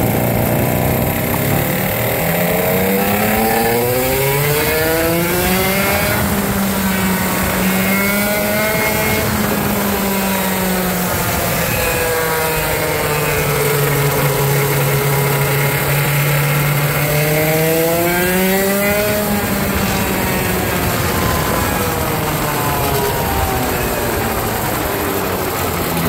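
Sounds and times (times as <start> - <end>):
go-kart engine revving: 0.0 - 26.0.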